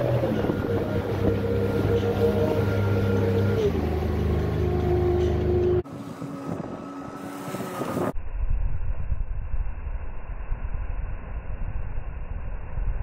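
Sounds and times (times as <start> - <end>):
jet boat engine: 0.0 - 8.2
rushing water: 0.0 - 8.2.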